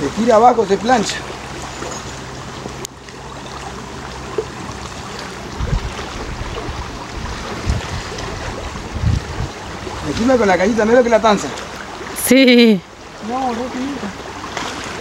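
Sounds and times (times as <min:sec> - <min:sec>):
moving water: 0:00.0 - 0:15.0
wind on microphone: 0:05.4 - 0:10.6
low thumps of wind buffeting: 0:05.4 - 0:11.0.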